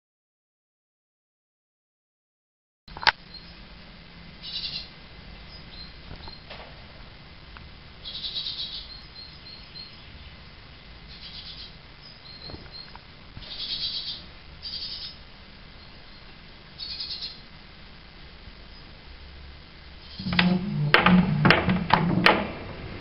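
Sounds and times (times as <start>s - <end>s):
fledglings chirping: 4.4s - 6.5s, 8.0s - 17.5s.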